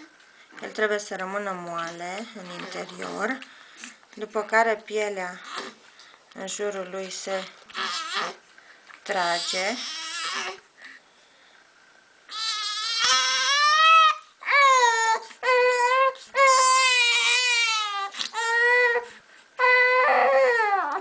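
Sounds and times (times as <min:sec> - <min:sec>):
baby crying: 0:07.7 - 0:08.4, 0:09.4 - 0:10.6, 0:12.3 - 0:21.0.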